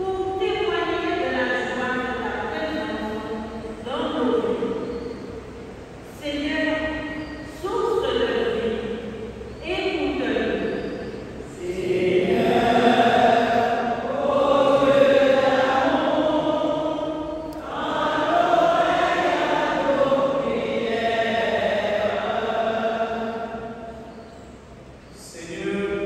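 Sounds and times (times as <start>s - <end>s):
congregation chanting: 9.9s - 26.0s.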